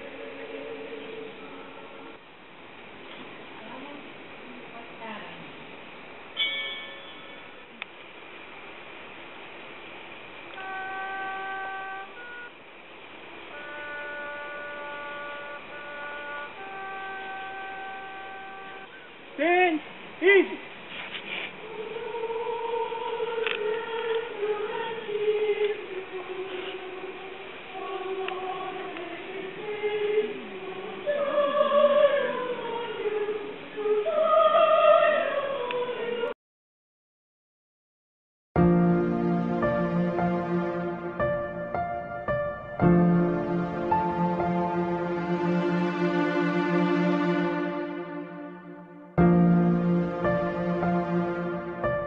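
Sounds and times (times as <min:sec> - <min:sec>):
voices singing slow song: 0:00.0 - 0:02.4, 0:10.4 - 0:19.3, 0:21.5 - 0:36.4, 0:38.6 - 0:52.0
brass instrument held notes: 0:10.5 - 0:12.6, 0:13.4 - 0:19.1, 0:38.6 - 0:52.0.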